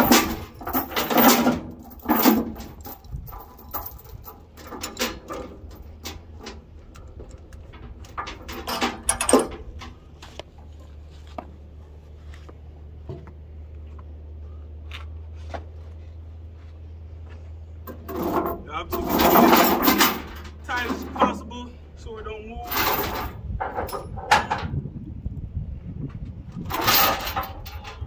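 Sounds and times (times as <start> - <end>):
metal chain clanking: 0.0 - 10.1, 17.8 - 21.7, 22.6 - 24.8, 26.6 - 28.0
steady low hum: 0.0 - 28.0.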